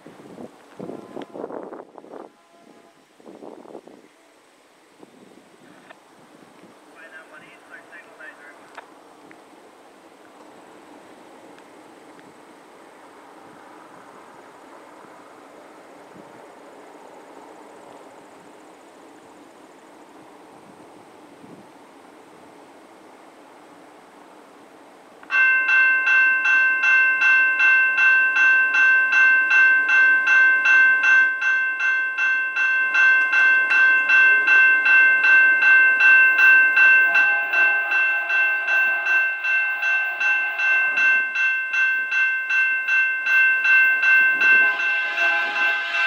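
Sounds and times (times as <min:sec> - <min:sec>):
railway crossing bell ringing: 0:25.3 - 0:46.0.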